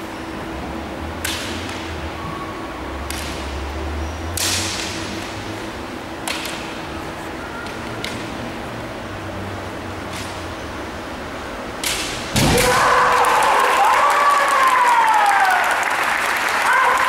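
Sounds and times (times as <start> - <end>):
steady low hum: 0.0 - 13.2
bamboo swords clacking: 1.2 - 2.0, 4.3 - 5.4, 6.2 - 7.0, 7.6 - 8.5, 11.7 - 12.9.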